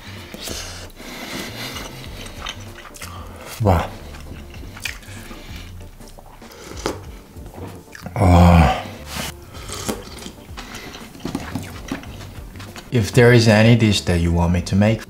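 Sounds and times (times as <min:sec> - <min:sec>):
background music with bass: 0:00.0 - 0:15.0
sipping and slurping: 0:00.2 - 0:13.0
mouth and voice sound: 0:03.1 - 0:04.2.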